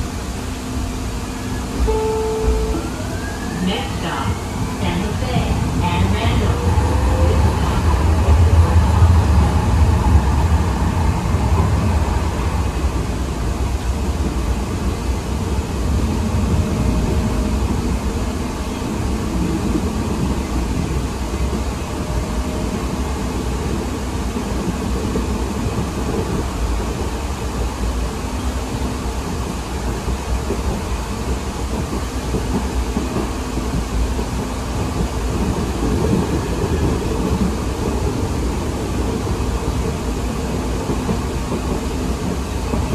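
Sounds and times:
train wheels rumbling on rails: 0.0 - 42.9.

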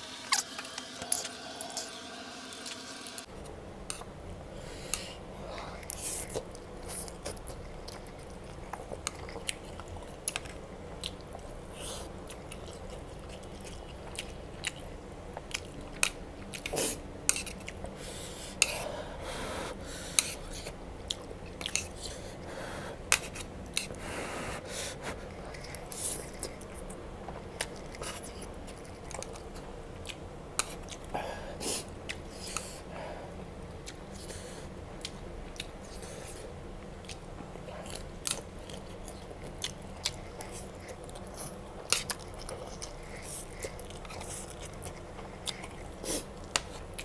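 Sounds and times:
wet chewing and lip smacks: 4.9 - 18.8, 20.2 - 22.2, 35.0 - 47.0.

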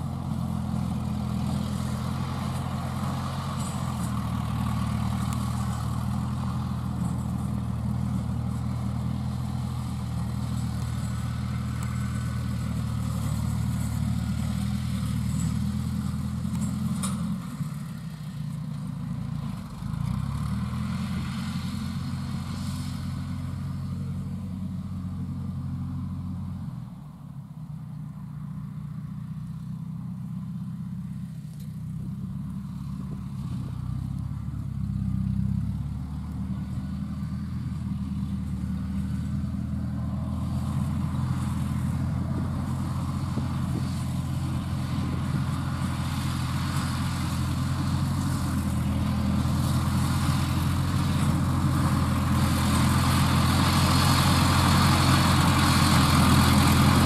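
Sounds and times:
rotary tiller engine running: 0.0 - 23.0, 37.1 - 57.0.

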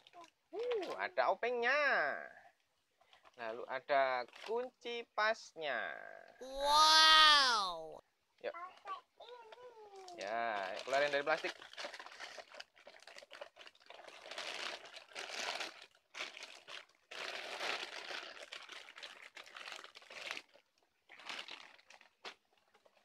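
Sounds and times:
plastic wrapping crinkling: 4.3 - 4.6, 9.4 - 23.0.

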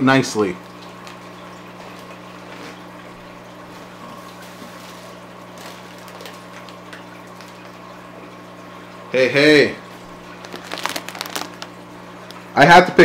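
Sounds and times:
low electrical hum: 0.0 - 13.0
plastic bags rustling: 4.2 - 7.6, 10.2 - 12.5.

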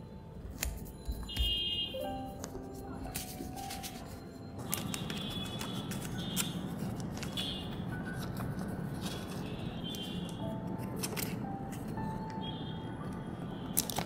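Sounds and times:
paper and plastic rustling: 2.3 - 10.1, 10.7 - 11.9, 13.7 - 14.0.

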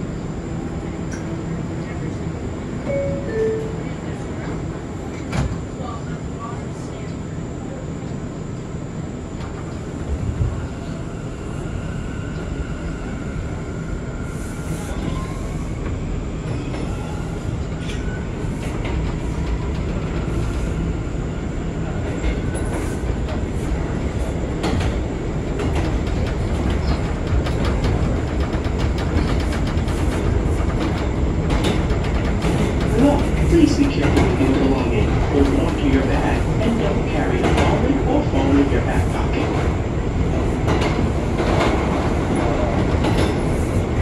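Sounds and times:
subway wheels rumbling on rail: 0.0 - 44.0.

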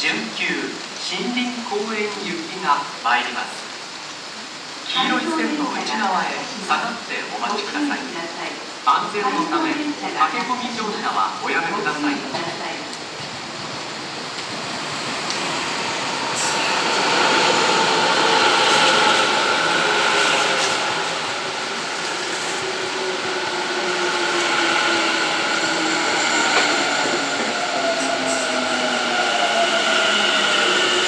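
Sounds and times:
train wheels rumbling on rails: 11.8 - 31.0.

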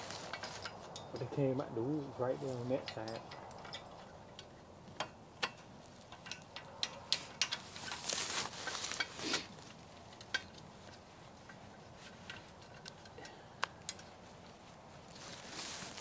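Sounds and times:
rustling in dry grass: 0.0 - 3.2, 7.1 - 13.2, 14.0 - 16.0
metal clicks and clanks: 0.2 - 1.6, 2.6 - 9.1, 10.0 - 14.2.

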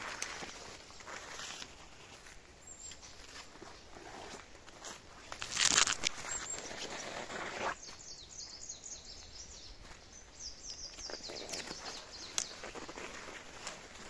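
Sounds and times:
footsteps through leaf litter: 0.0 - 8.1, 11.0 - 14.0
songbird singing: 2.4 - 4.6, 5.2 - 14.0.

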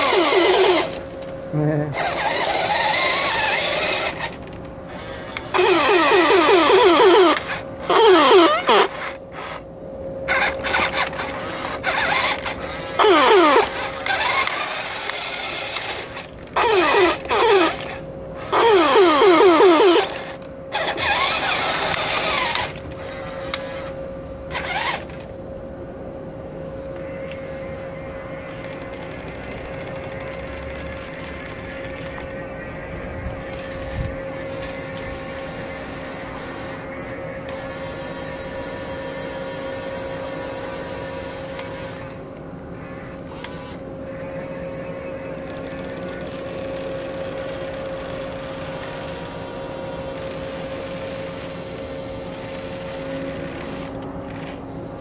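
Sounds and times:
toy siren wails: 0.0 - 1.3, 2.0 - 4.4, 5.4 - 9.1, 10.3 - 23.7
harsh noisy blasts: 10.3 - 25.2.

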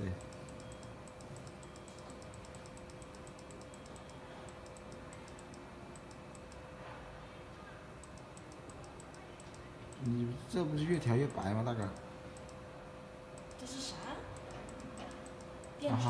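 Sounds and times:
computer keyboard clicking: 0.0 - 6.7, 8.0 - 10.2, 13.4 - 16.0
faint hum: 0.0 - 16.0.

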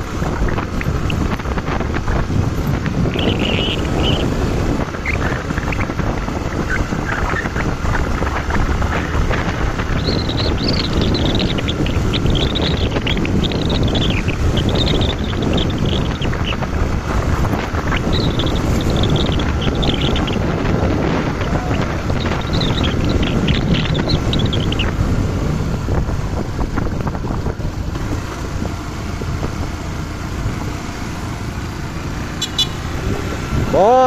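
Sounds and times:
wind buffeting microphone: 0.0 - 30.9, 31.6 - 34.0
high chirping: 3.0 - 6.0, 9.0 - 25.0.

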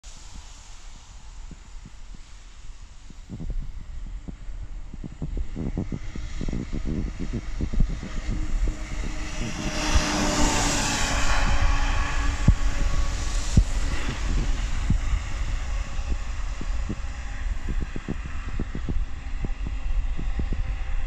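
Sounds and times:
tyre hiss on wet road: 0.0 - 6.4, 8.3 - 18.4
wind buffeting microphone: 0.1 - 21.0
fire engine driving past: 5.4 - 21.0.

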